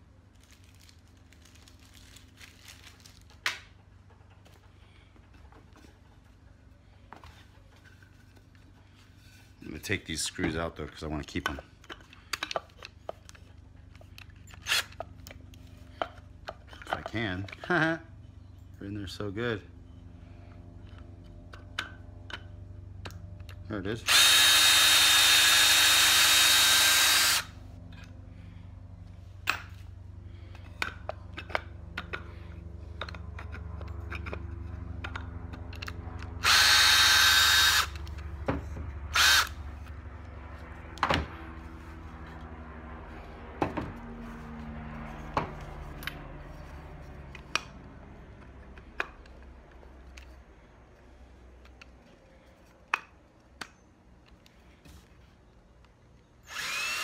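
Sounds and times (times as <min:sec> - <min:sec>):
low steady hum: 0:00.0 - 0:57.0
cordless drill whining: 0:14.6 - 0:15.0, 0:24.1 - 0:27.6, 0:36.4 - 0:38.2, 0:39.1 - 0:39.6, 0:56.4 - 0:57.0.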